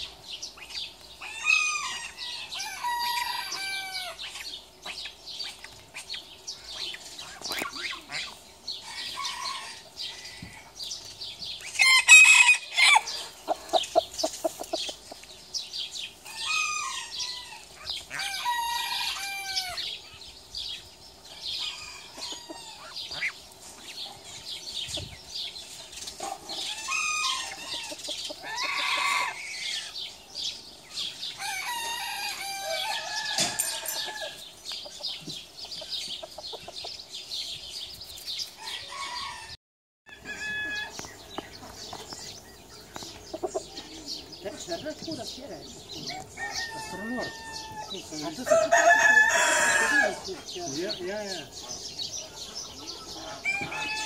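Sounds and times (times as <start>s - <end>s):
chickens clucking: 0.0s - 37.9s, 40.1s - 54.0s
rooster crowing: 1.2s - 4.2s, 8.8s - 10.7s, 11.8s - 13.3s, 16.2s - 20.0s, 21.4s - 23.0s, 26.6s - 30.0s, 31.3s - 34.5s, 38.6s - 41.0s, 46.0s - 50.3s, 53.3s - 54.0s.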